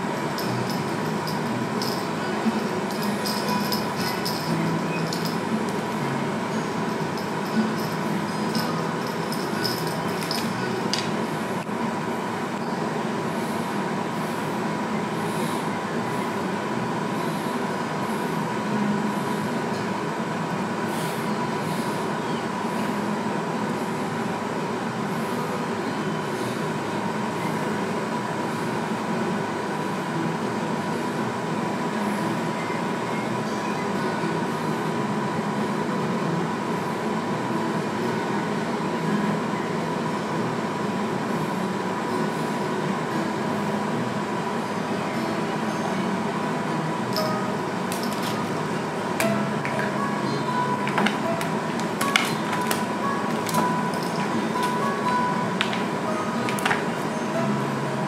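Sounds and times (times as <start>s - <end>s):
constant high tone: 0.0s - 11.7s, 41.4s - 58.0s
machine hum and hiss: 0.0s - 58.0s.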